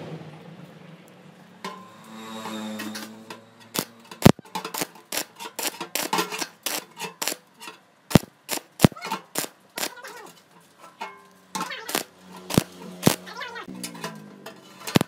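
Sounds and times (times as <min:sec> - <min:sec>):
arc welding crackling bursts: 0:03.7 - 0:07.5, 0:08.1 - 0:10.2, 0:11.8 - 0:13.4.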